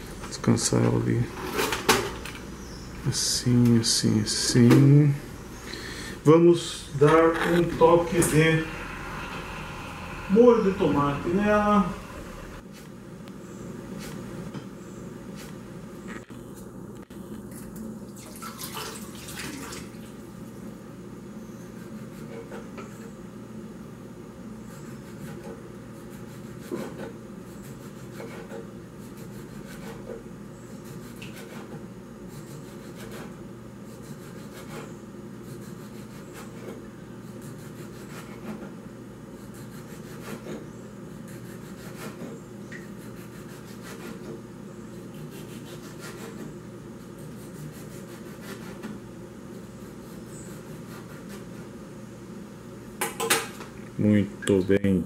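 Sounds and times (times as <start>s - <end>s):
steady background hum: 0.0s - 55.0s
knife slicing tomato: 24.7s - 30.2s, 45.1s - 49.0s.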